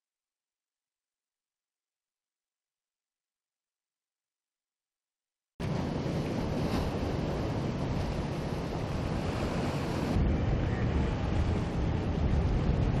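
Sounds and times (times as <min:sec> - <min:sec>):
rushing water: 0:05.6 - 0:13.0
wind rumble on microphone: 0:05.6 - 0:13.0.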